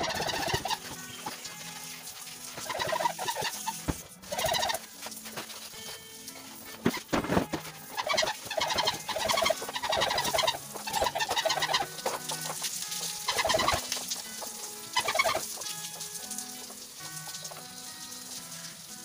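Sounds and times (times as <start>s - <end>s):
chickens clucking: 0.0s - 1.4s, 2.6s - 5.5s, 6.8s - 15.7s.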